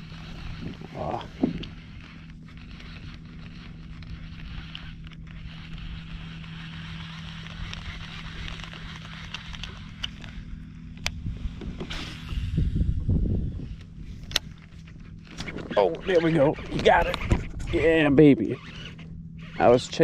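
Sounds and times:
fishing reel clicks: 0.0 - 10.4, 15.2 - 20.0
steady low hum: 0.0 - 20.0.

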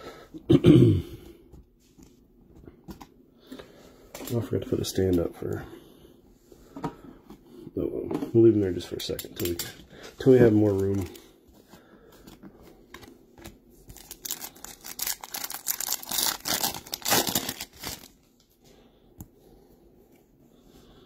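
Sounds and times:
foil wrapper tearing and crinkling: 13.9 - 18.2.

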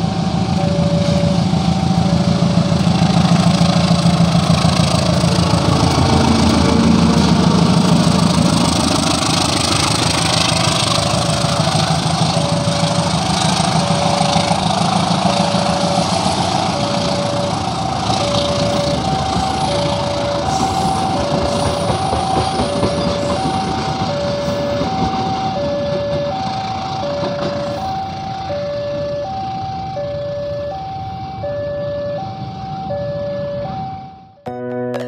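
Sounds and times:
train coaches rumbling on rails: 0.0 - 31.4
level-crossing alarm two tones: 0.0 - 34.4
music: 34.4 - 35.0.

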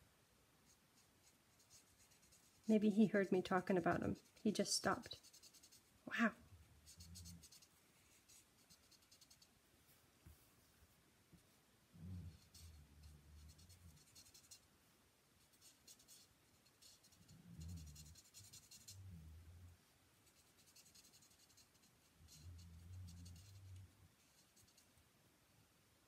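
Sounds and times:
marker scratching on card: 0.7 - 2.7, 3.9 - 5.9, 6.8 - 9.5, 12.3 - 14.6, 15.4 - 19.0, 20.2 - 24.9.

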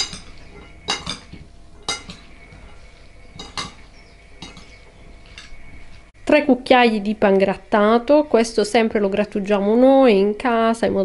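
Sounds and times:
metal spoons clinking ceramic bowl: 0.0 - 5.6.

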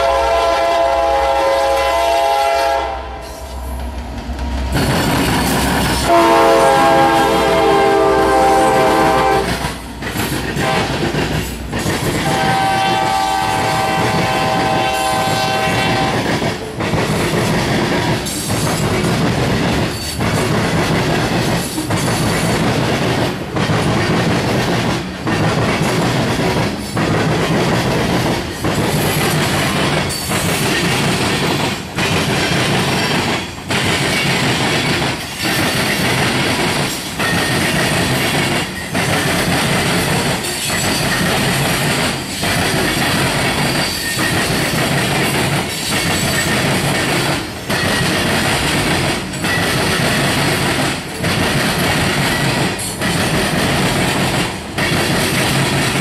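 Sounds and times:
locomotive horn: 0.0 - 3.5, 5.9 - 9.6, 10.6 - 11.0, 12.2 - 16.3
train rumble: 0.0 - 56.0
train wheels clickety-clack: 0.0 - 56.0.

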